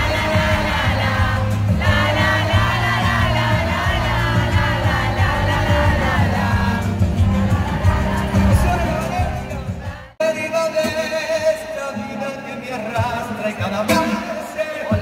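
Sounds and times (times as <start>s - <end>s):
audience singing along: 0.0s - 11.7s
live pop band playing: 0.0s - 15.0s.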